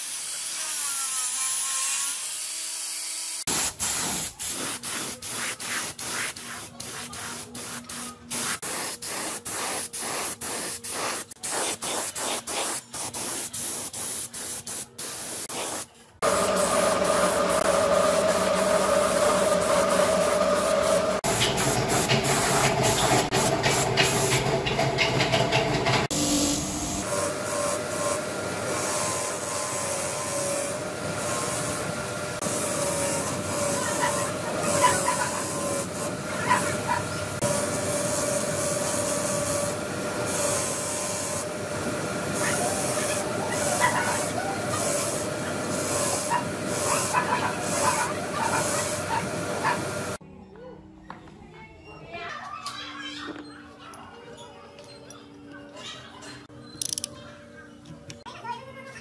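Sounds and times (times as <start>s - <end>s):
paint spraying in hissing bursts: 3.5s - 24.3s, 26.2s - 50.2s
bench grinder wheel humming: 16.2s - 50.2s
bolt scraping on grinder: 56.8s - 57.1s.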